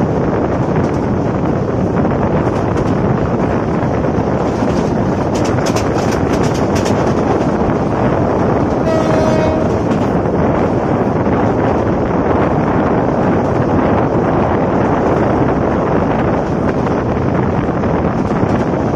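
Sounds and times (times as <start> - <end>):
train coaches rumbling: 0.0 - 18.9
wind buffeting microphone: 0.0 - 18.9
rapid sharp clacks: 0.8 - 8.8
train horn: 8.8 - 10.2.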